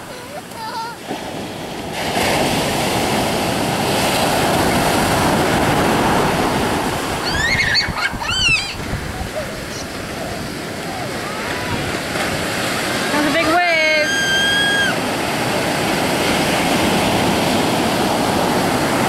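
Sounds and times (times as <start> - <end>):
ocean surf breaking: 0.0 - 19.0
child squealing: 7.2 - 8.8, 14.0 - 15.0.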